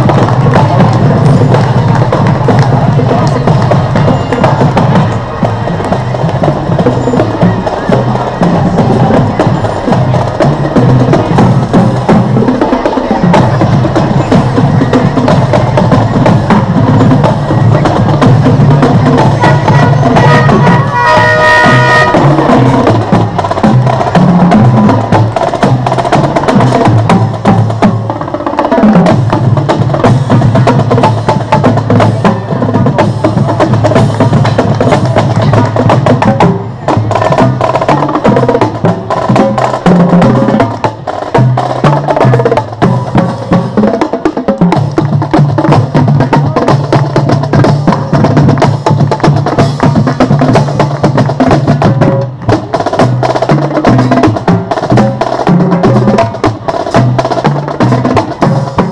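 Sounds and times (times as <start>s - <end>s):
drum line playing cadence: 0.0s - 58.9s
held horn-like tone: 19.2s - 23.1s.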